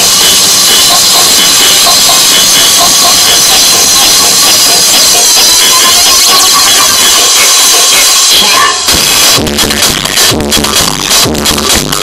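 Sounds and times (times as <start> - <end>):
loud distorted electronic music: 0.0 - 12.0.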